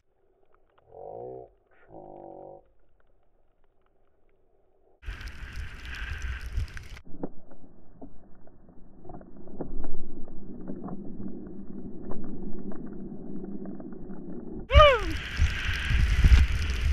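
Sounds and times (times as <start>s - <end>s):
skis scraping through snow: 5.0s - 7.0s, 15.2s - 16.9s
wind on microphone: 5.0s - 7.0s, 14.7s - 16.9s.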